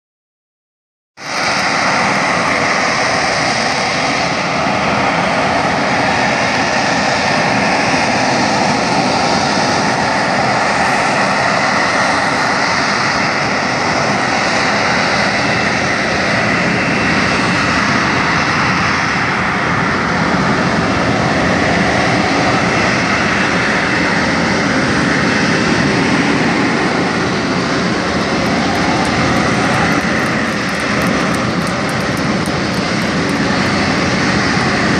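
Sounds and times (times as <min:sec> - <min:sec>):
jet hovering: 0:26.6 - 0:34.9.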